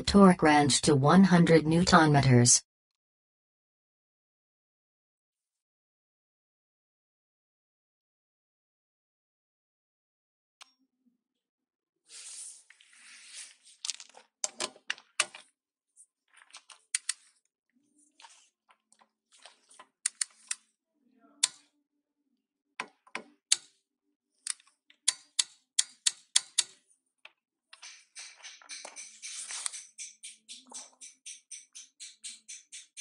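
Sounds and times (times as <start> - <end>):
torque wrench clicking: 27.8 - 33.0.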